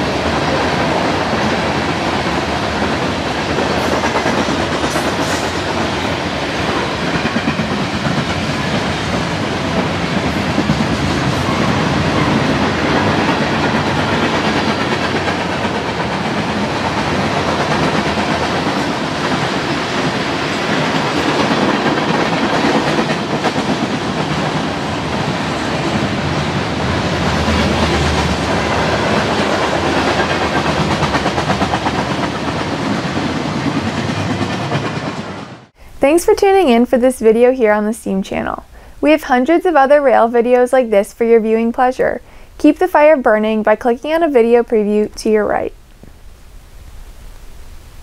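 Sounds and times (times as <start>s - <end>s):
wheels clacking over rail joints: 0.0s - 35.6s
train wheels rumbling on rail: 0.0s - 37.8s.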